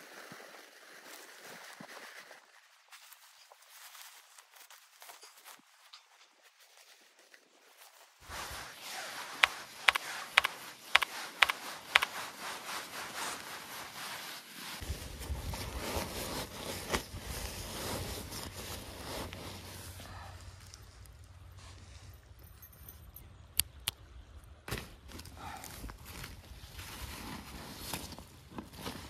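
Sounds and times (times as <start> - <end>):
fabric rustling and scraping: 3.0 - 22.4, 26.0 - 29.0
sharp clicks: 9.4 - 12.1.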